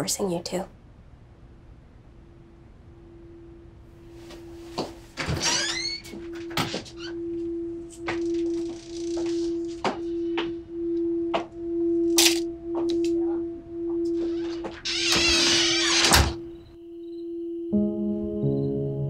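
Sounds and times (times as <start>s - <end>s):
pulsing synth tone: 5.8s - 15.8s.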